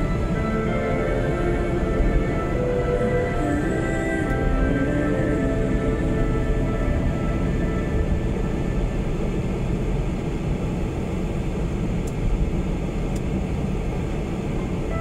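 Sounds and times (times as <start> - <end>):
car engine hum: 0.0 - 15.0.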